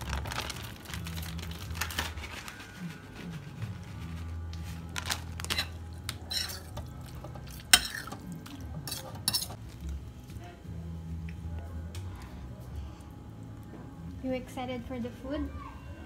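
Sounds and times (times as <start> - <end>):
cutlery clinking and scraping bowl: 5.5 - 9.6.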